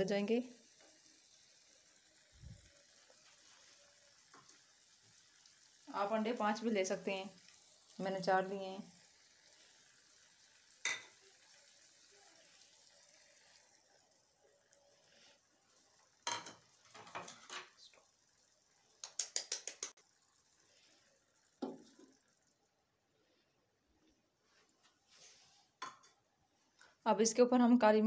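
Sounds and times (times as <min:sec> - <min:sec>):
faint sizzle: 0:00.0 - 0:28.0
bowl and spoon clinking on pan: 0:10.8 - 0:11.2.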